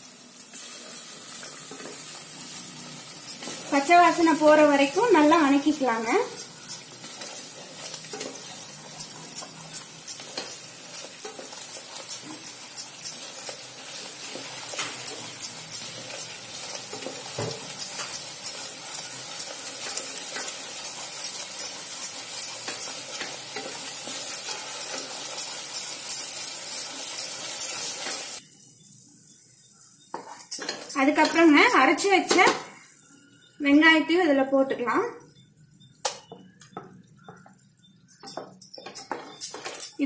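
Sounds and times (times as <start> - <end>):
paste sizzling in oil: 0.0 - 28.4
spoon scraping a pot: 0.0 - 28.4.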